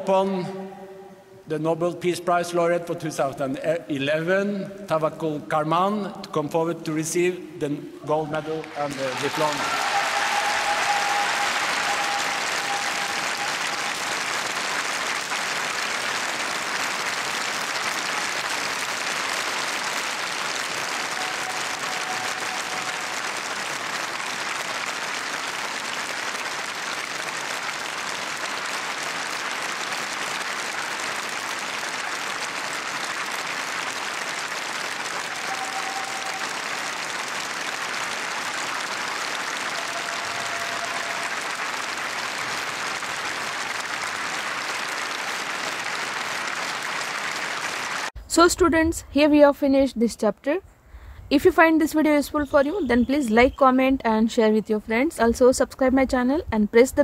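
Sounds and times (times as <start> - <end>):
large audience applauding: 8.0 - 48.2.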